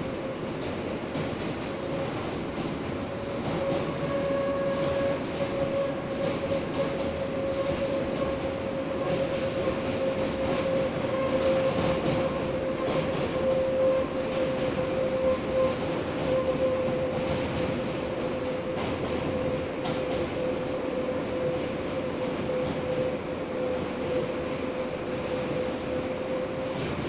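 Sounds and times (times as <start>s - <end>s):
wheels rumbling on rail: 0.0s - 27.0s.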